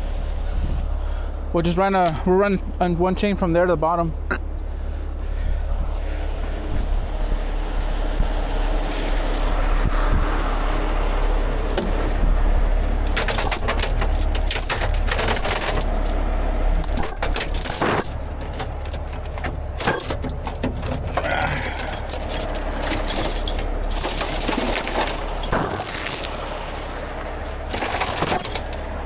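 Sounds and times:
steady low rumble: 0:00.0 - 0:29.0
chain links clinking: 0:13.0 - 0:29.0.

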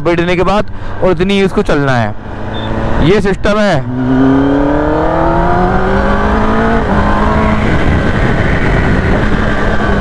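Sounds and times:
motorcycle engine accelerating: 0:02.3 - 0:10.0
wind rush on microphone: 0:04.0 - 0:10.0.

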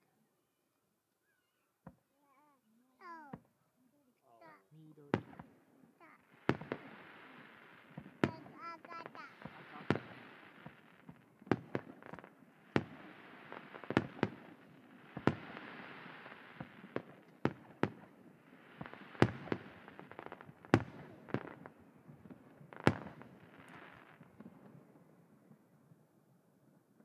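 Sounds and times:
firework shells bursting: 0:04.4 - 0:18.1.

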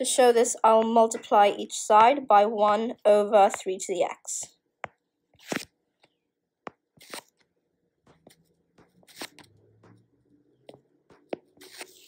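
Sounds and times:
person speaking: 0:00.0 - 0:04.5.

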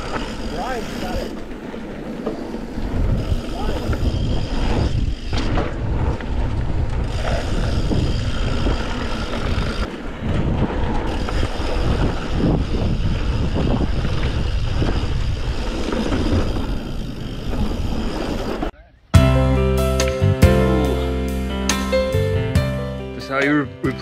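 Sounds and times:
bike tyres rolling on dirt: 0:00.0 - 0:18.8
wind on microphone: 0:00.0 - 0:18.8.

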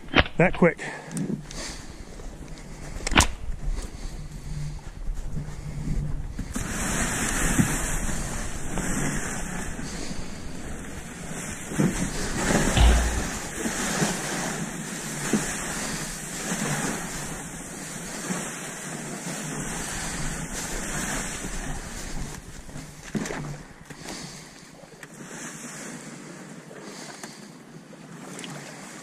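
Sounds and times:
heavy low thump: 0:12.8 - 0:13.7.

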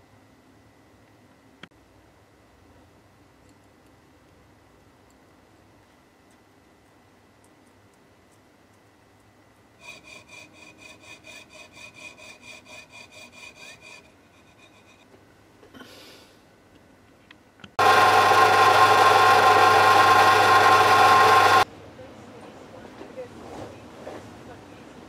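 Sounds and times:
jeweller's saw cutting metal: 0:09.8 - 0:15.1, 0:17.8 - 0:21.6
drill press motor running: 0:17.8 - 0:21.6.

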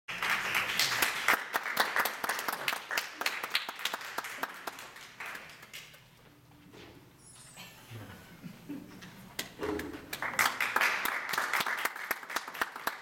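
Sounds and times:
audience applauding: 0:00.1 - 0:05.9, 0:09.8 - 0:13.0.

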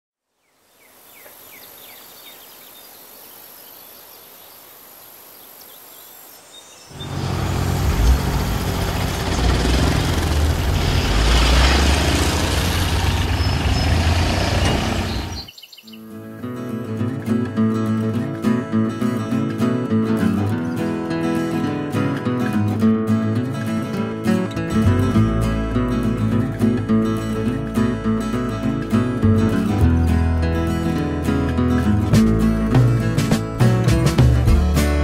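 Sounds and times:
birds chirping: 0:00.4 - 0:16.1
farm vehicle engine running: 0:06.9 - 0:15.5, 0:24.6 - 0:35.0.

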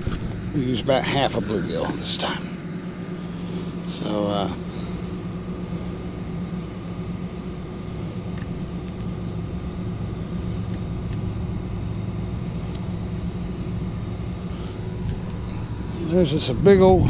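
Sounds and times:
low rumble: 0:00.0 - 0:04.0
crickets chirping: 0:00.0 - 0:17.0.

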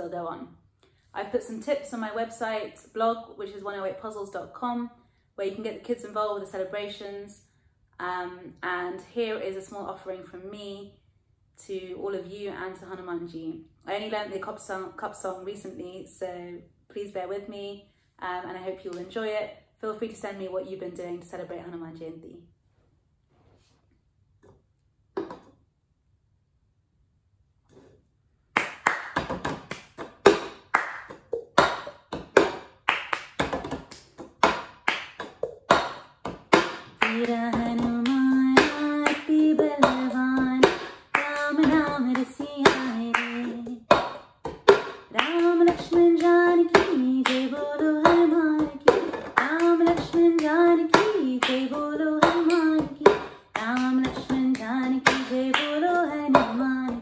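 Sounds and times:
cup tapped on tabletop: 0:25.2 - 0:25.5
hand claps: 0:28.6 - 0:57.0
woman singing: 0:37.0 - 0:44.0, 0:45.1 - 0:57.0.

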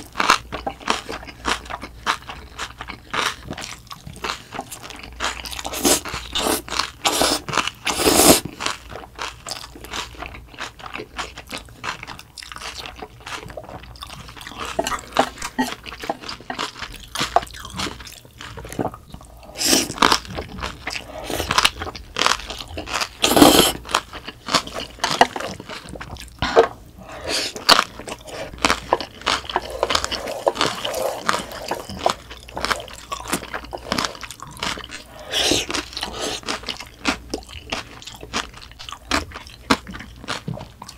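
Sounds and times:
wet crunchy chewing: 0:00.0 - 0:40.9
noodles slurping: 0:05.2 - 0:08.6, 0:14.3 - 0:21.9, 0:22.6 - 0:23.9, 0:24.5 - 0:38.0.

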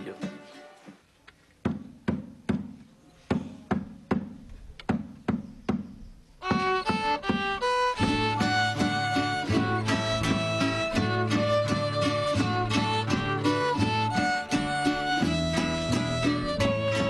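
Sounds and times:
drum beating: 0:01.6 - 0:17.0
plucked strings: 0:06.4 - 0:17.0
violin melody: 0:06.4 - 0:17.0.

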